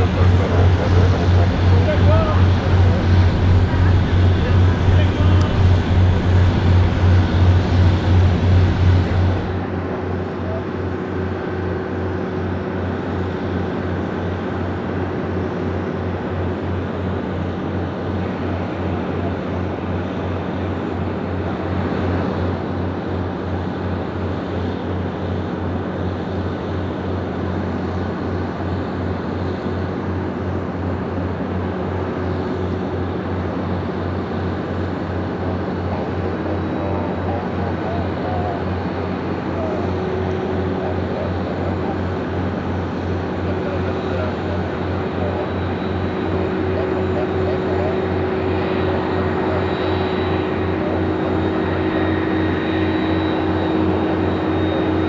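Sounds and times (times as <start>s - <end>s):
low pulsing: 0.0s - 9.8s
jet engines taxiing: 0.0s - 55.0s.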